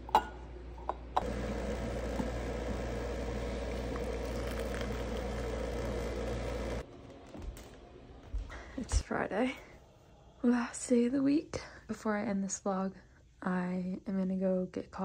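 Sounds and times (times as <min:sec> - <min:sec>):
water pouring into mug: 0:01.2 - 0:06.8.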